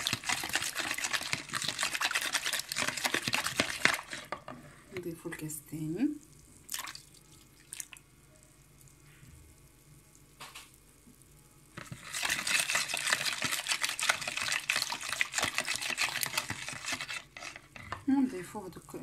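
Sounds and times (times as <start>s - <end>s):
whisk tapping bowl: 0.0s - 4.5s, 11.9s - 18.1s
rapid whisking batter in bowl: 0.0s - 4.6s, 11.8s - 18.2s.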